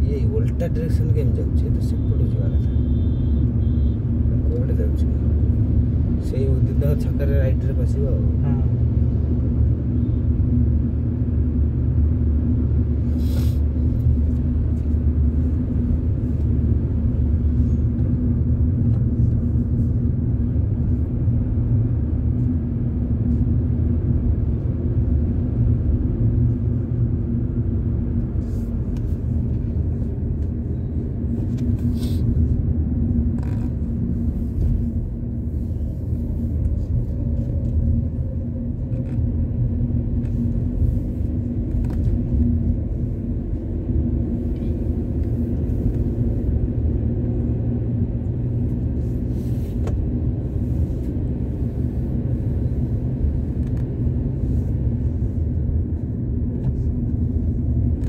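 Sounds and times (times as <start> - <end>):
car engine and road rumble: 0.0 - 58.0
constant low hum: 0.0 - 58.0.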